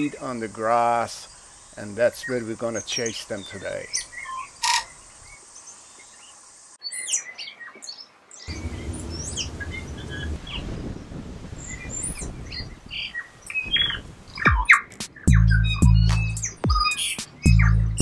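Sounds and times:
birds chirping and calling: 0.0 - 11.0, 11.6 - 18.0
low rumble: 8.5 - 10.5.

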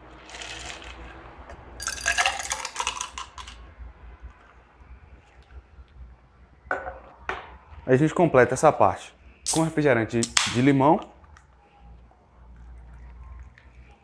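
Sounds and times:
ice clattering into a glass: 0.2 - 1.0, 1.8 - 3.6.

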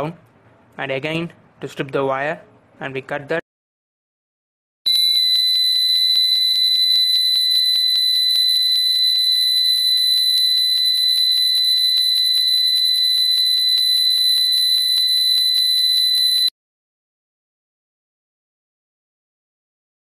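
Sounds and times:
high-pitched alarm buzzer: 4.9 - 16.5.

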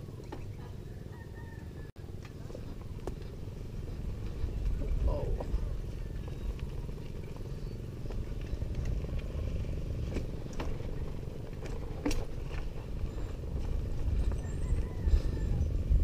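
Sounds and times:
bike rolling over dirt trail: 2.1 - 16.0
wind rumbling on microphone: 2.4 - 16.0
bike knocks and clicks: 10.0 - 12.8.

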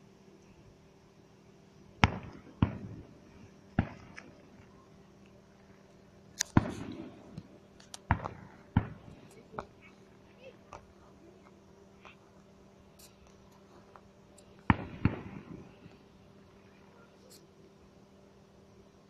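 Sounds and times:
fireworks banging: 2.0 - 4.8, 6.3 - 11.0, 14.4 - 16.1
small firework cracks: 2.0 - 16.2.

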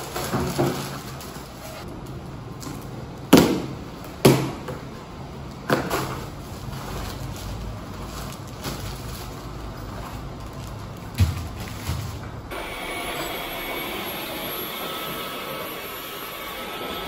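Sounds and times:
plastic and paper rustling: 0.0 - 2.9, 5.8 - 12.6
sharp knocks of wrapped items: 3.3 - 4.9, 11.0 - 12.4.

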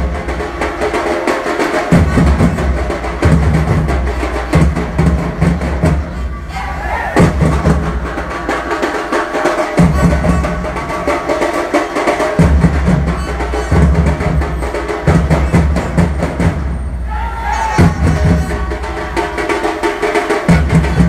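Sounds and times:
drums beaten fast and loud: 0.0 - 21.0
deep drum: 1.9 - 6.1, 7.2 - 8.5, 17.8 - 19.7
crowd shouting: 6.1 - 10.2, 16.9 - 21.0.

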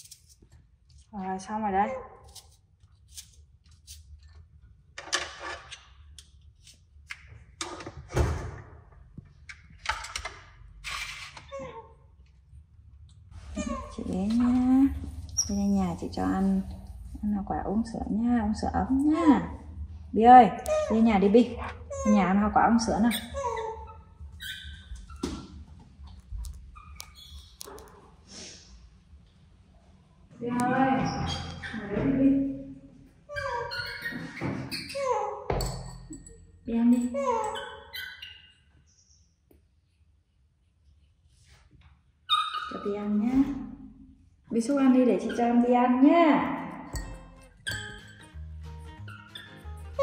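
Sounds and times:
monkey squeaking: 13.6 - 16.2, 20.6 - 25.4, 26.7 - 28.0, 30.9 - 31.9, 33.3 - 39.1, 42.3 - 43.2, 47.0 - 50.0.

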